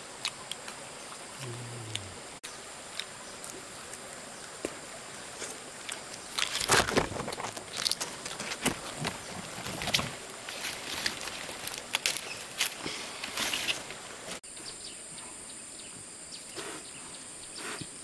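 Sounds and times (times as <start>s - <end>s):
insects droning: 0.0s - 18.0s
rustling foliage and wood knocks: 6.3s - 14.4s.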